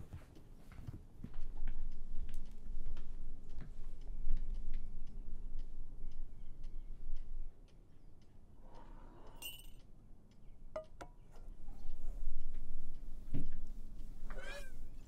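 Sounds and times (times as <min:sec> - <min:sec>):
clock ticking: 0:01.3 - 0:15.0
sharp clinks: 0:09.3 - 0:09.9.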